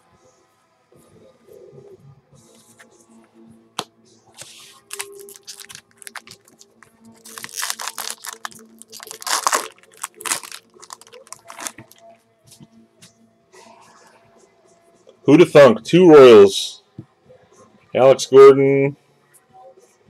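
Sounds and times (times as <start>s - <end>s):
faint background music: 0.0s - 20.0s
foil wrapper crinkling and tearing: 4.8s - 12.0s.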